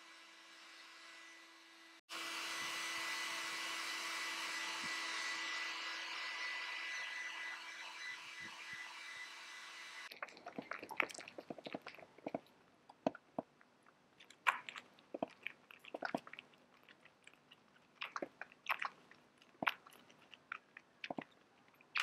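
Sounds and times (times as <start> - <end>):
hair dryer blowing: 2.1 - 10.1
kitten suckling from bottle: 10.1 - 13.5, 14.3 - 22.0.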